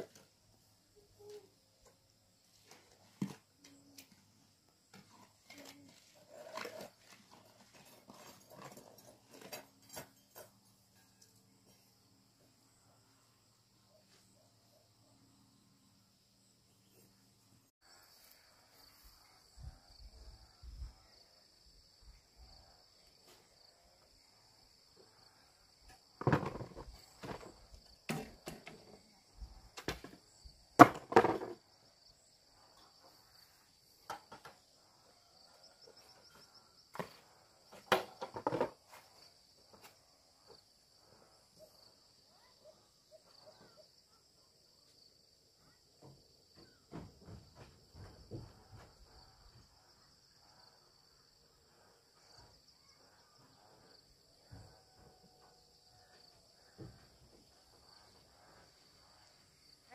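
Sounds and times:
sharp knocks and scrapes: 0:04.9 - 0:11.8, 0:25.9 - 0:29.0, 0:30.8 - 0:31.6, 0:36.2 - 0:39.2.

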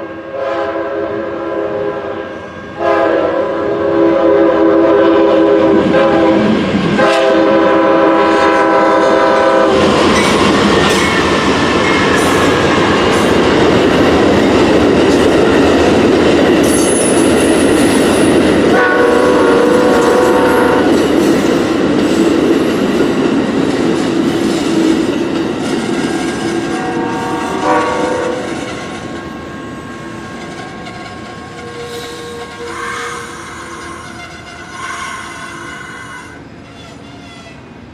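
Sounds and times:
train air horn blasts: 0:00.0 - 0:09.9, 0:18.7 - 0:21.0, 0:26.7 - 0:29.1, 0:30.5 - 0:37.5
train wheels clattering over rails: 0:08.8 - 0:34.0.

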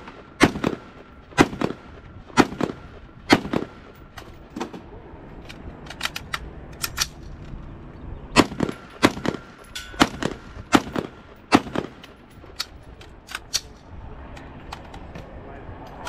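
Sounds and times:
rifle shots: 0:00.0 - 0:04.7, 0:08.3 - 0:12.6.

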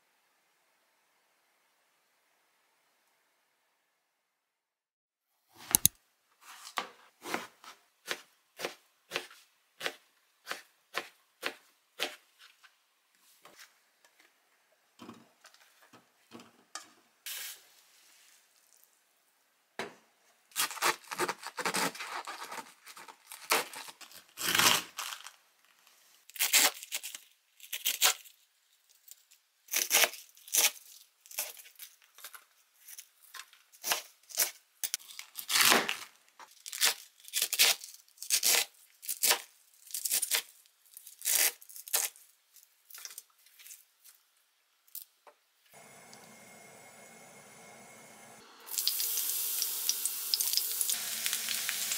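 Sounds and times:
knife slicing on cutting board: 0:07.2 - 0:12.2
cabbage crunching and rustling: 0:20.6 - 0:25.3.

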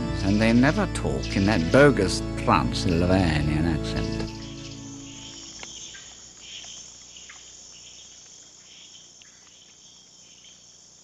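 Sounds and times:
background music: 0:00.0 - 0:05.7
insects chirring: 0:00.0 - 0:11.0.

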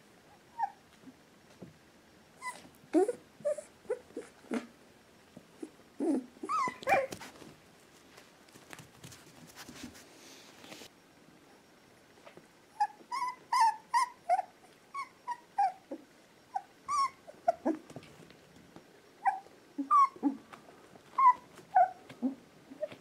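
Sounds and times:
puppies whimpering: 0:02.4 - 0:04.3, 0:05.6 - 0:07.2, 0:12.8 - 0:17.8, 0:19.2 - 0:20.4, 0:21.1 - 0:23.0.

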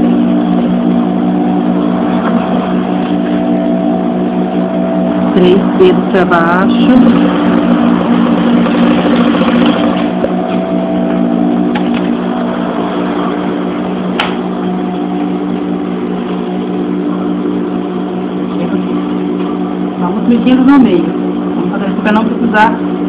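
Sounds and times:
sewing machine running: 0:06.4 - 0:10.3.

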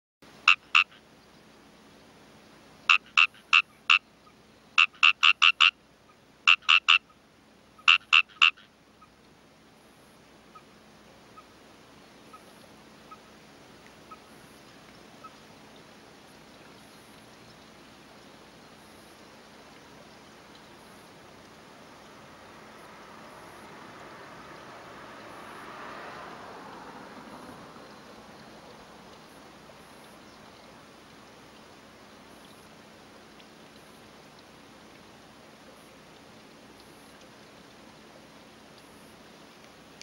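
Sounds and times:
faint steady hiss: 0:00.2 - 0:40.0
frog croaking: 0:00.4 - 0:01.0, 0:02.9 - 0:05.8, 0:06.4 - 0:07.2, 0:07.8 - 0:08.7.

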